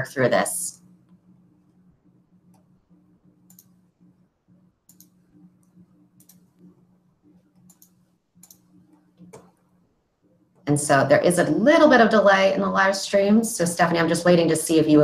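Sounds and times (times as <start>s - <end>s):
low steady hum: 0.0s - 15.0s
faint computer clicks: 3.4s - 3.8s, 4.8s - 6.8s, 7.6s - 9.6s.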